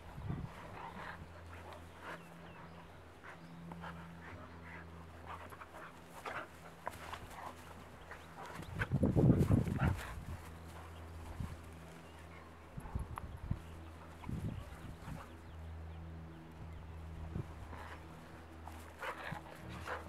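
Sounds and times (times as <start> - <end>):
puppies panting: 0.0 - 20.0
puppies play noises: 0.0 - 20.0.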